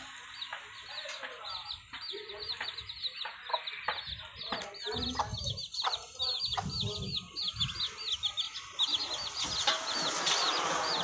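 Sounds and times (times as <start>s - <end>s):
chicks peeping: 0.0s - 11.0s.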